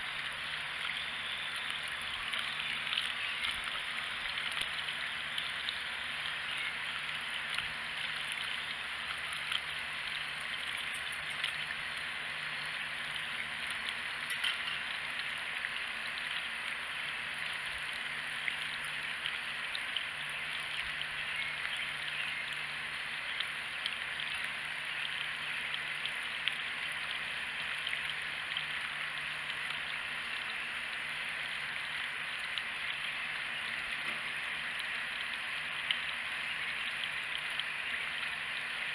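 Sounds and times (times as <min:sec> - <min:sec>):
water drip ticks: 0:00.0 - 0:38.9
hose water splashing into can: 0:00.1 - 0:21.9.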